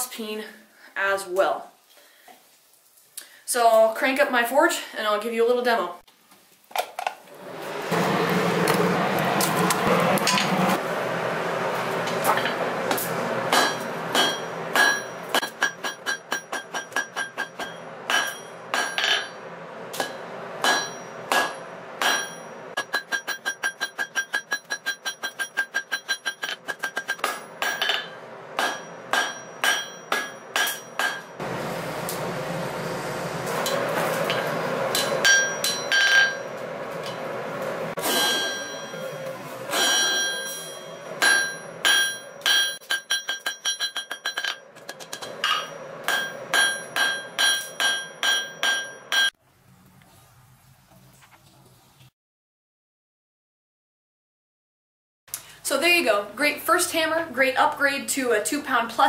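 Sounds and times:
forge blower air rush: 7.3s - 22.8s, 27.2s - 42.8s
hammer ringing on anvil: 13.5s - 19.4s, 20.0s - 31.4s, 34.3s - 36.6s, 38.0s - 49.4s.

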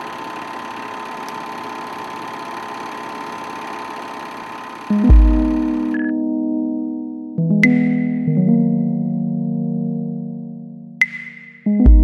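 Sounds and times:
film projector whirring: 0.0s - 6.0s
held synthesizer chord: 4.9s - 11.0s.

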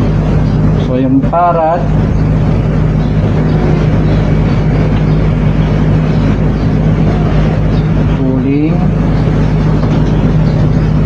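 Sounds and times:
low electric hum: 0.0s - 11.0s
machine whirring: 0.0s - 11.0s.

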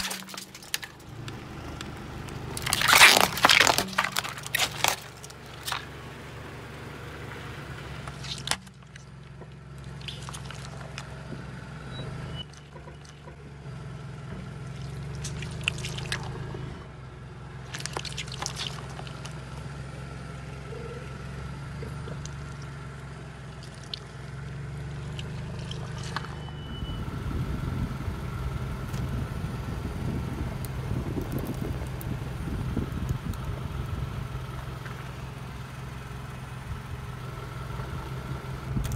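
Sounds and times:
sharp cracks and crackle: 0.0s - 6.0s, 8.0s - 11.2s, 14.4s - 16.5s, 17.6s - 19.6s, 30.2s - 35.2s
tyre rolling on wet pavement: 0.0s - 6.1s, 25.0s - 36.6s
car engine idling: 0.0s - 38.9s.

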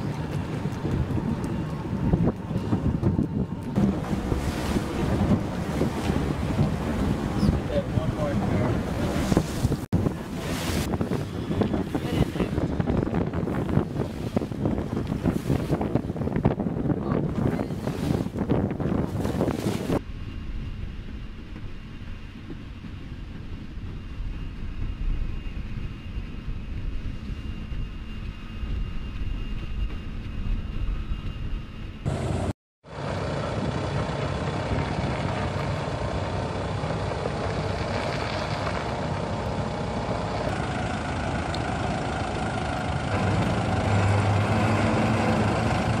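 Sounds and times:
heavy vehicle engine running: 32.0s - 46.0s.

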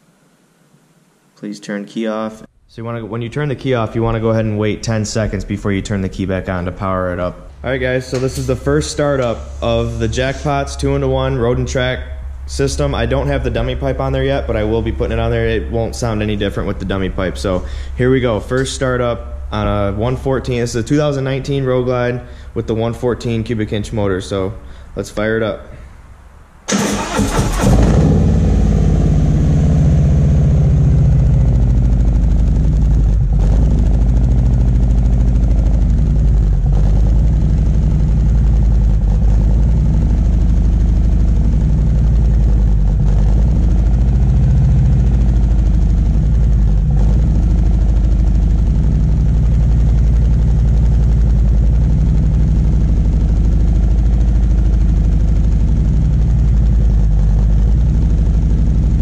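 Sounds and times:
motorcycle engine idling: 27.8s - 59.0s.

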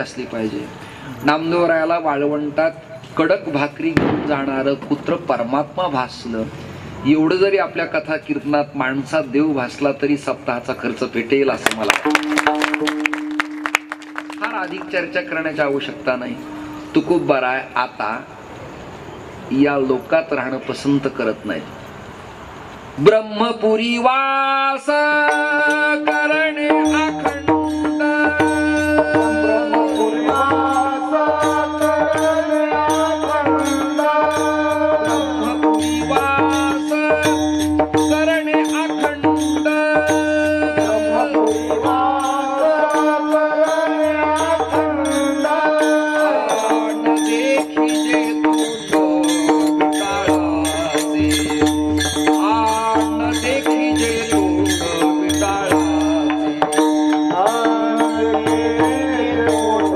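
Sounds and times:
hand cymbals clicking: 11.6s - 17.4s, 25.2s - 59.9s
steady drone: 13.1s - 18.4s
voices singing: 23.0s - 59.9s.

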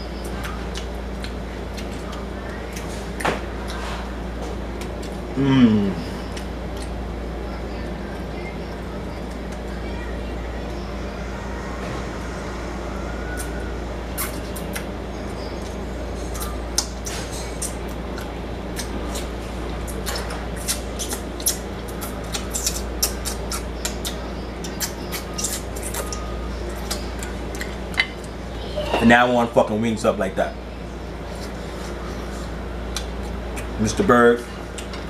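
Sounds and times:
steady low hum: 0.0s - 35.0s
person chewing: 0.2s - 4.0s, 4.7s - 7.0s, 15.6s - 28.4s
lip-smacking: 0.3s - 3.8s, 6.2s - 7.0s, 16.3s - 28.4s, 32.9s - 33.8s.

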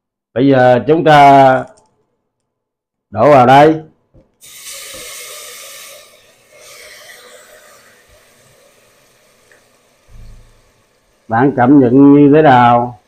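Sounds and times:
vegetables sizzling in hot oil: 4.4s - 13.0s.

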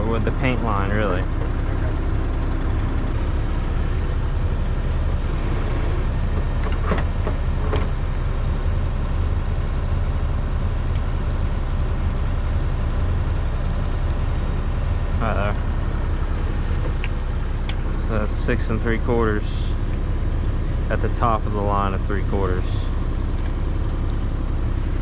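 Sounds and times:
diesel engine idling: 0.0s - 25.0s
steady high tone: 7.8s - 18.8s, 23.0s - 24.3s
fast electronic beeping: 7.9s - 18.3s, 23.1s - 24.3s.

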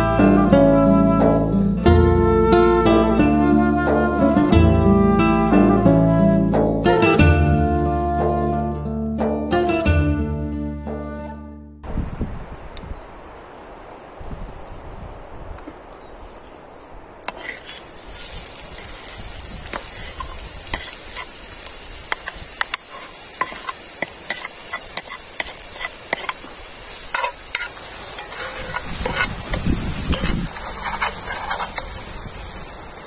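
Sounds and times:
utensil scraping a pan: 16.2s - 21.4s, 22.1s - 32.1s
food sizzling in a frying pan: 17.3s - 33.0s.

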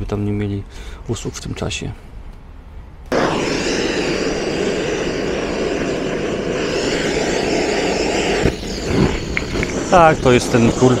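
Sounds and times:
gas torch flame roaring: 3.1s - 11.0s.

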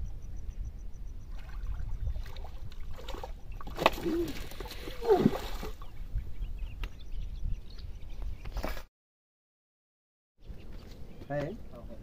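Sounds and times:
fish thrashing and splashing water: 1.3s - 5.8s.

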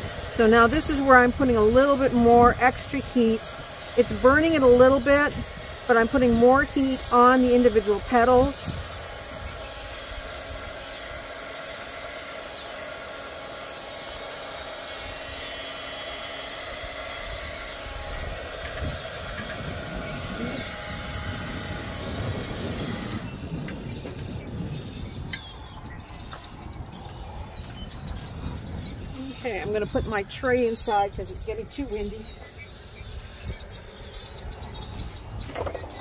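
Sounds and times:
wind rumble on microphone: 0.0s - 10.8s, 17.2s - 36.0s
heat gun blowing hot air: 0.0s - 24.4s.

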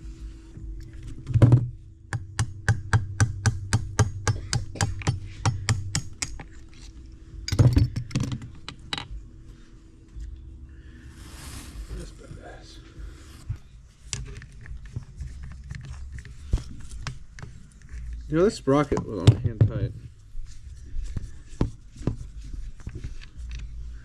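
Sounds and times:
ratchet wrench clicking: 4.0s - 6.5s.

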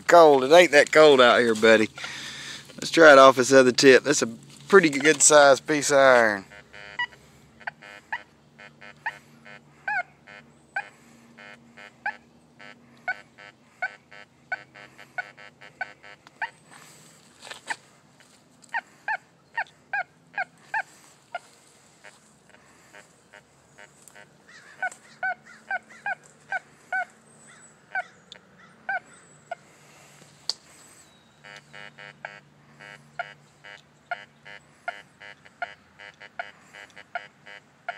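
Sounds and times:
metal detector beeps: 6.1s - 16.2s, 31.0s - 37.9s.

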